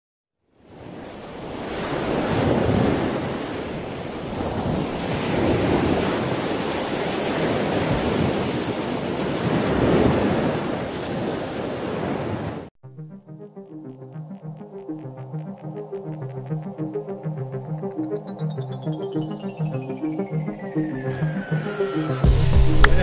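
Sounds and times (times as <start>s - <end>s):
ocean surf breaking: 0.8s - 12.6s.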